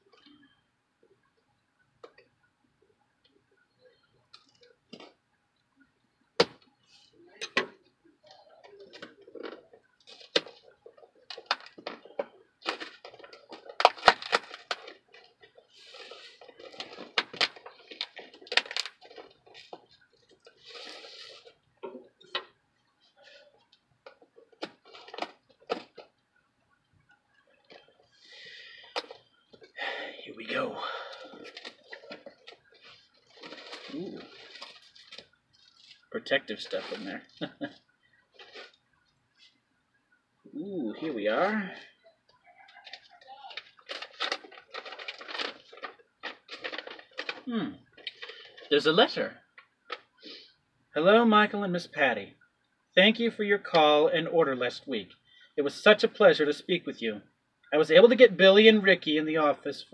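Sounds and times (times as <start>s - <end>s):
paper crinkling: 8.7s - 22.3s, 23.0s - 26.2s, 31.1s - 38.8s, 42.6s - 48.9s
packing tape scratched and peeled: 12.7s - 21.6s, 42.9s - 48.7s.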